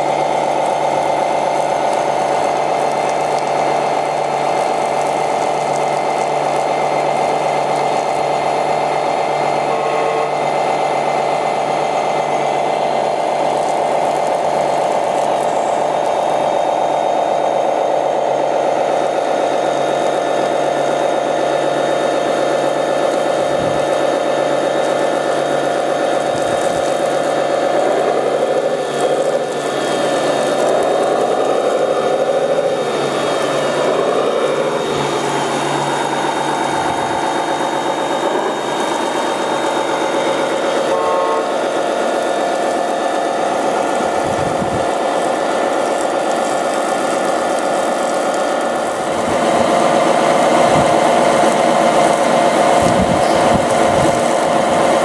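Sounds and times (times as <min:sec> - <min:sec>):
model truck motor hum: 0:00.0 - 0:55.0
whine rising and falling: 0:00.0 - 0:55.0
short horn beep: 0:40.9 - 0:41.6.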